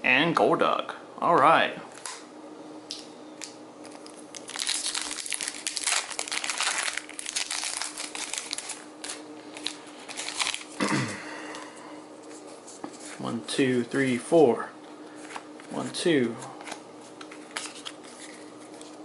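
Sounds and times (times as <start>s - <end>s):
foil wrapper crinkling: 3.4s - 10.9s.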